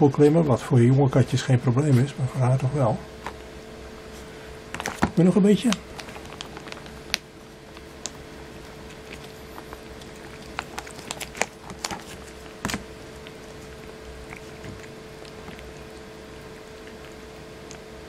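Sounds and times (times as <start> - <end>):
cat chewing and licking food: 4.1 - 18.0.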